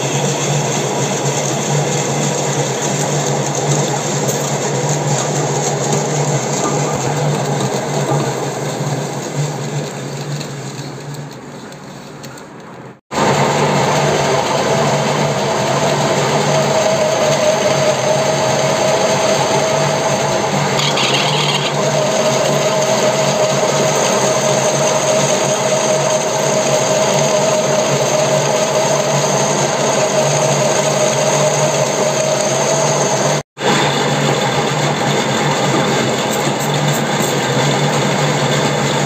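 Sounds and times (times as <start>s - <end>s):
metal lathe humming and whining: 13.2s - 39.0s.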